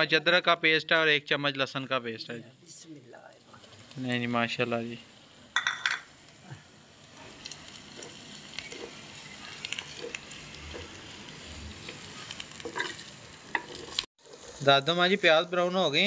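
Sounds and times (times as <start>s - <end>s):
onions sizzling in hot oil: 0.0s - 16.0s
spatula scraping and tapping pot: 7.9s - 9.1s, 9.7s - 11.0s, 11.9s - 14.0s.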